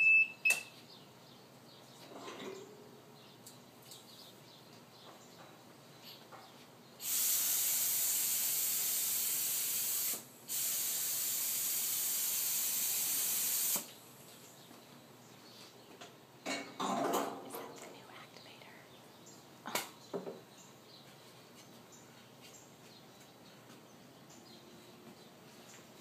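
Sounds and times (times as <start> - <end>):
spray gun hissing: 7.0 - 13.9.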